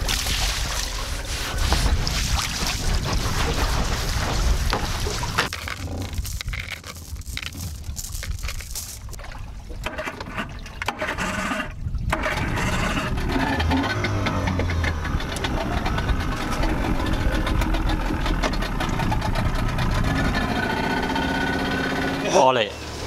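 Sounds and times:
wind and water noise: 0:00.0 - 0:23.0
scraping and knocking: 0:01.3 - 0:09.2
boat motor: 0:09.7 - 0:23.0.

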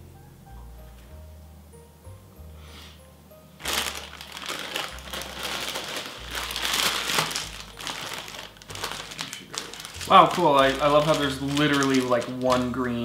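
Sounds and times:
plastic bag crinkling: 0:03.6 - 0:13.0.

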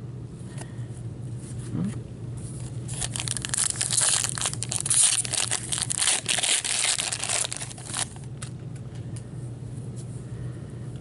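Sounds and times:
plastic wrapper crinkling: 0:02.9 - 0:08.5.

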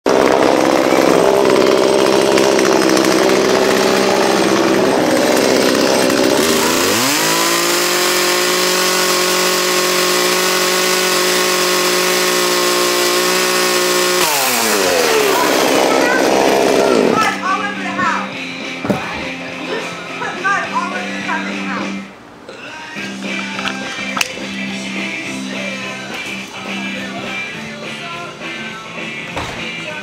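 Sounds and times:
chainsaw revving: 0:00.0 - 0:18.2.

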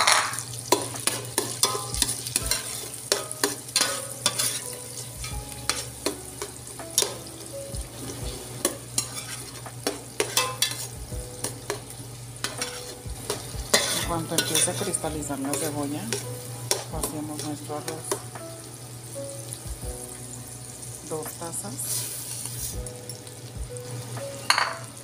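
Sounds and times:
onions sizzling in butter: 0:00.0 - 0:25.0
spoon scraping a pot: 0:01.0 - 0:04.8, 0:08.6 - 0:11.0, 0:12.4 - 0:17.5.

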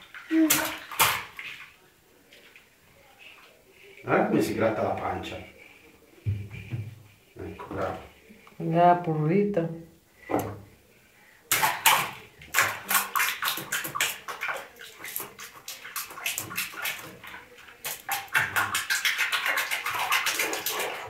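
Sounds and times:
water splashing in baby bath: 0:00.0 - 0:01.8, 0:11.5 - 0:21.0.

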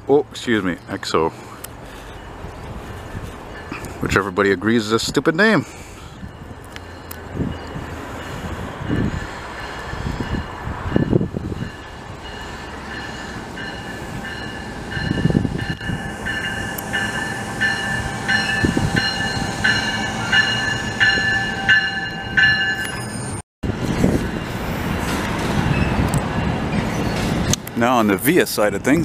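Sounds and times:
train rumbling past: 0:00.8 - 0:29.0
high pulsing ringing: 0:09.7 - 0:23.4.

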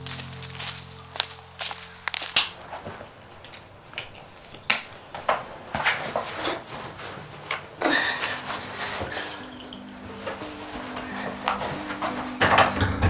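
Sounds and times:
backpack rustling: 0:00.0 - 0:04.4.

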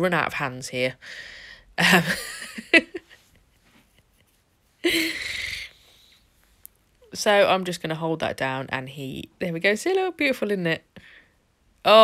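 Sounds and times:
woman's breathy wheezy laugh: 0:01.9 - 0:04.2, 0:04.8 - 0:06.2.

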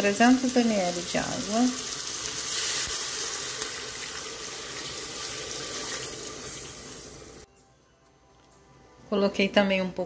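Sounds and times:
water pouring into a pot: 0:00.9 - 0:07.4.

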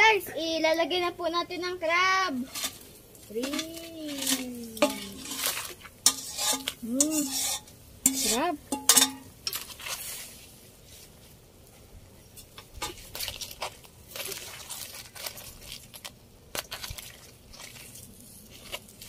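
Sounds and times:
faint sizzling: 0:00.7 - 0:13.1
metal turner scraping a pot: 0:02.4 - 0:10.3.

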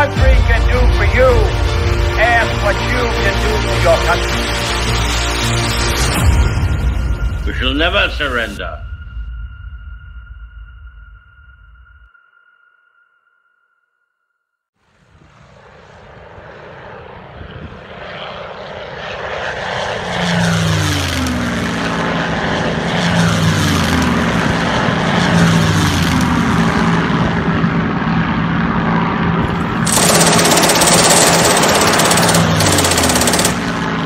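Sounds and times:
propeller aircraft engines droning: 0:00.0 - 0:05.5, 0:15.4 - 0:34.0
loud harsh noise: 0:29.5 - 0:34.0.

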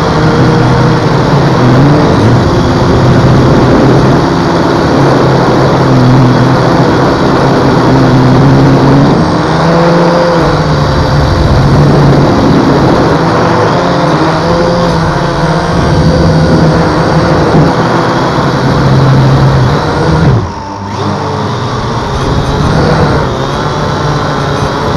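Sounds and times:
drone motors and propellers: 0:00.0 - 0:24.9.

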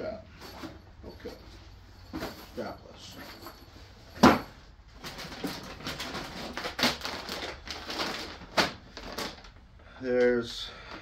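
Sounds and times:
plastic packaging crinkling: 0:05.0 - 0:09.6.

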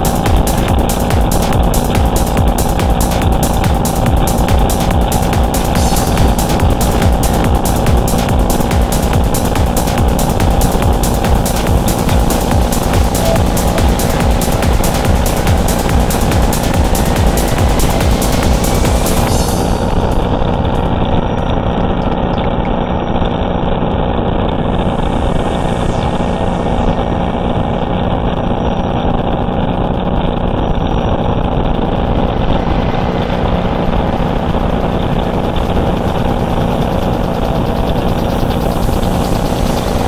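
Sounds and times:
boat engine running: 0:00.0 - 0:40.0
water rushing: 0:30.8 - 0:40.0.

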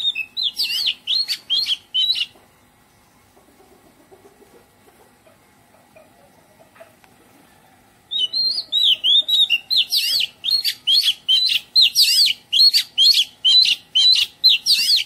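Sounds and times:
bird singing whistled notes: 0:00.0 - 0:02.3, 0:08.1 - 0:15.0.

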